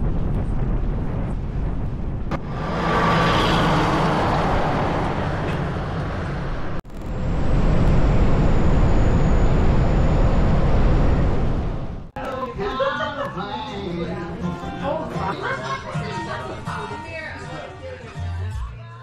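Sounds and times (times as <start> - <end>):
road and wind noise from vehicle: 0.0 - 12.2.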